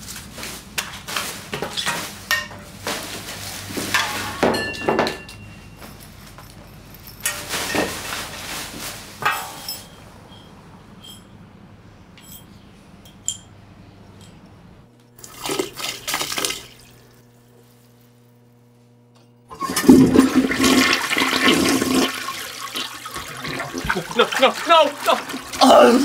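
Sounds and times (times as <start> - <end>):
toilet flushing: 15.2 - 17.2, 19.5 - 26.0.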